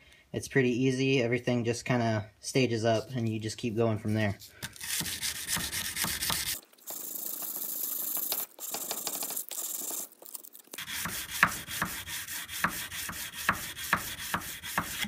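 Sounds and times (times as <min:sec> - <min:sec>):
sandpaper rubbing on steel blade: 0:04.8 - 0:15.0.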